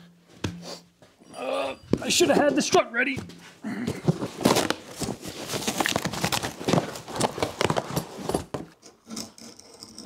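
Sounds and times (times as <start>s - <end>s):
cardboard box being handled: 4.0s - 8.6s.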